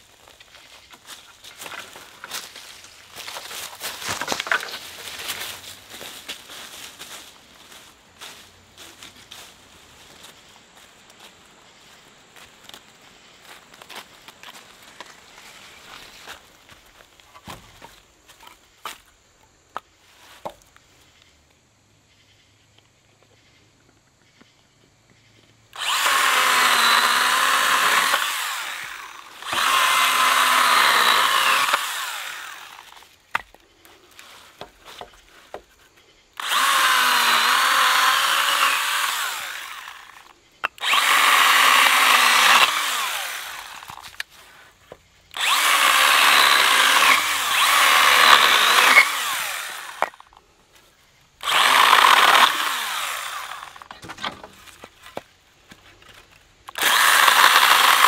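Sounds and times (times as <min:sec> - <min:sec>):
chainsaw cutting branches: 0:01.0 - 0:09.5, 0:25.7 - 0:33.5, 0:36.4 - 0:44.4, 0:45.3 - 0:50.4, 0:51.4 - 0:55.2, 0:56.0 - 0:58.0.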